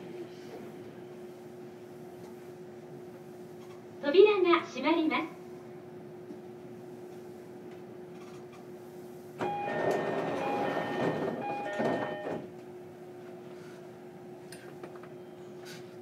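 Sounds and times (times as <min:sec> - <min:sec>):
train electrical hum: 0:00.0 - 0:16.0
door chime tones: 0:09.4 - 0:12.4
train doors closing: 0:09.4 - 0:12.6.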